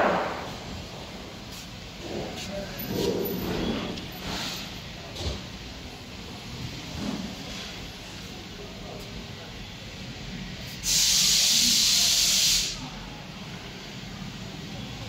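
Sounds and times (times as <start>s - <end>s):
loud burst of hissing: 10.7s - 12.9s.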